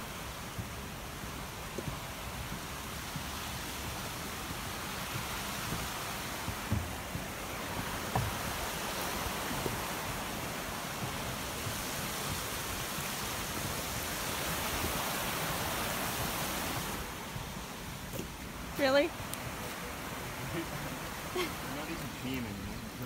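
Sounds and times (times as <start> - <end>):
river rushing over rapids: 0.0 - 23.0
soft knocks: 5.1 - 7.3, 8.0 - 8.6.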